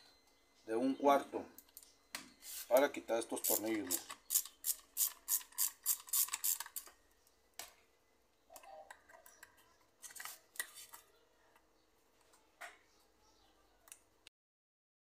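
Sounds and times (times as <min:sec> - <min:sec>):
hand ratchet clicking: 0:03.4 - 0:06.9.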